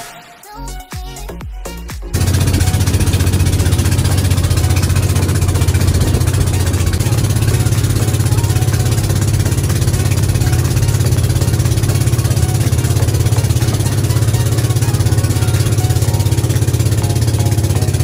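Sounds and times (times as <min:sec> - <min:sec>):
boat engine throbbing: 0:02.1 - 0:18.0.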